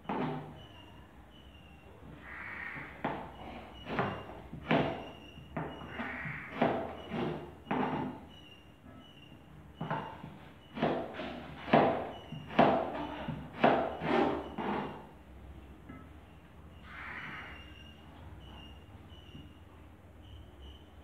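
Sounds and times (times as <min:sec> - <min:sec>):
knife chopping on cutting board: 0:10.8 - 0:14.9.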